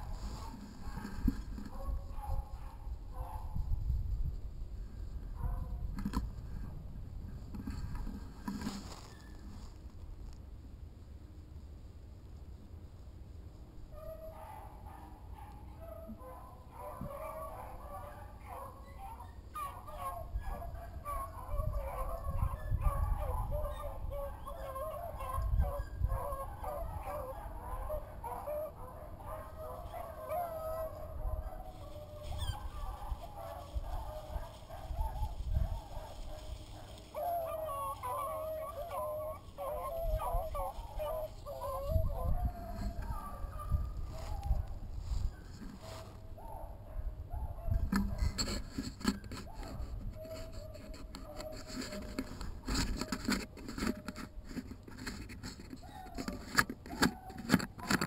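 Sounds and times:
footsteps crunching through leaves: 0.0s - 1.6s, 8.2s - 10.1s, 29.6s - 41.8s, 43.8s - 46.4s
turkeys clucking and purring: 0.0s - 2.2s, 36.0s - 46.6s
distant dog baying: 0.0s - 3.7s, 13.9s - 54.3s
twigs scraping and snapping: 7.4s - 10.4s, 31.8s - 41.8s, 47.9s - 58.0s
low microphone rumble: 39.4s - 46.5s.

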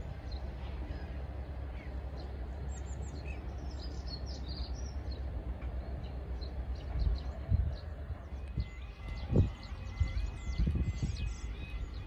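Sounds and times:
low outdoor rumble: 0.0s - 12.0s
small birds chirping: 0.1s - 12.0s.

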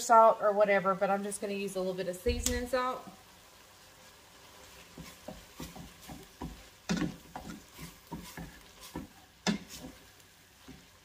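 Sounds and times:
spatula scraping a steel pan: 6.9s - 10.0s.

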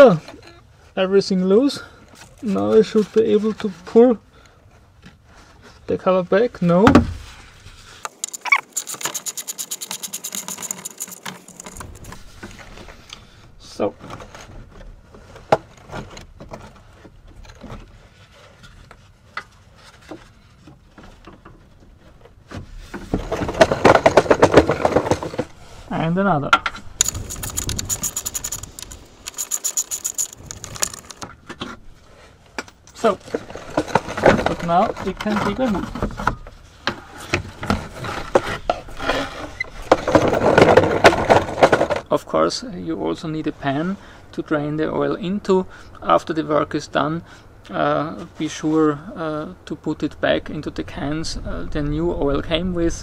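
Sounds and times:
fast run of clicks: 8.0s - 12.2s, 27.0s - 31.3s
knocks and clicks: 26.5s - 31.4s.

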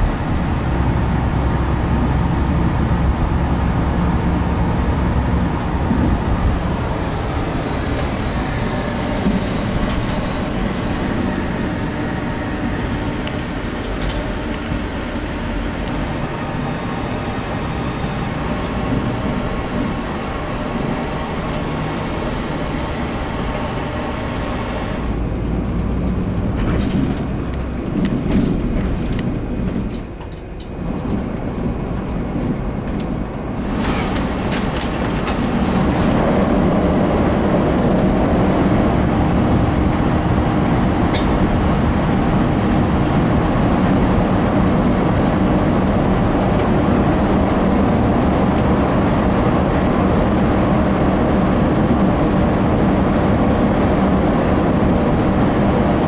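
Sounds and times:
coach engine and road rumble: 0.0s - 56.0s
brief high squeals: 6.4s - 12.0s, 20.9s - 25.2s.

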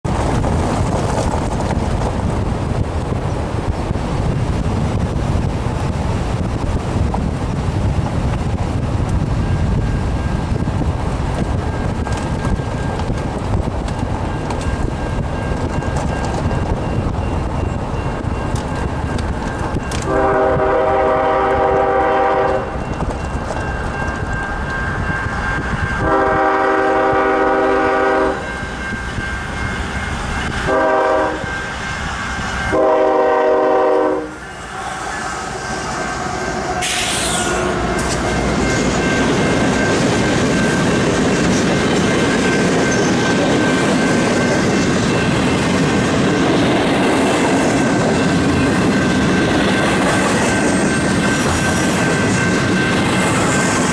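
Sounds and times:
freight train rumbling past: 0.0s - 53.9s
locomotive air horn: 20.0s - 22.8s, 26.0s - 28.5s, 30.7s - 31.7s, 32.7s - 38.4s
wheels clacking over rail joints: 22.3s - 25.2s, 36.0s - 53.9s.

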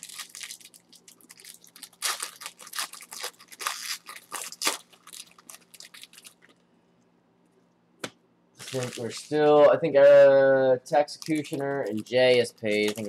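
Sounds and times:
foil wrappers crinkling and tearing: 0.0s - 6.6s, 8.6s - 9.5s, 11.0s - 13.0s.

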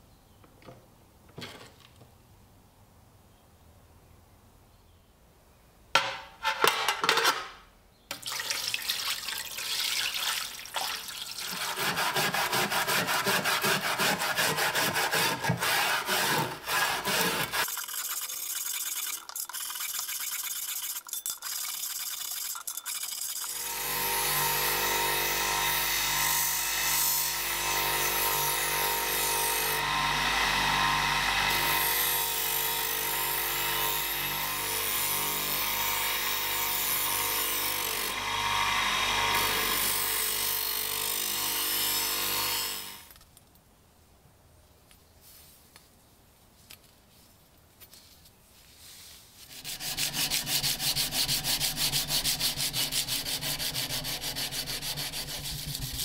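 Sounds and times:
abrasive strip rubbing on blade: 49.4s - 56.0s.

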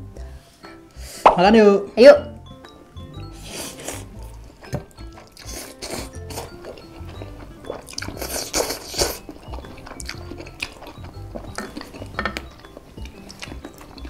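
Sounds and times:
background music with bass line: 0.0s - 14.0s
noodles being slurped: 5.1s - 10.8s
forks clinking on glass dish: 11.5s - 12.6s.

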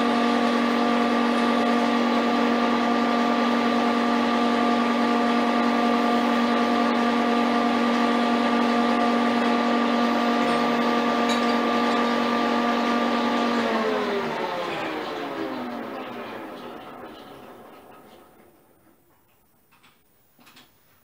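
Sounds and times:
metal lathe whining: 0.0s - 19.3s.

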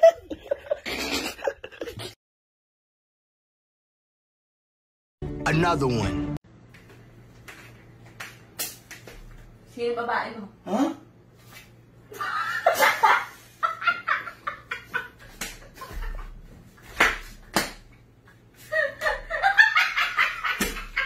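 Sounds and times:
woman laughing: 0.0s - 2.2s, 12.1s - 16.4s, 18.6s - 21.0s.

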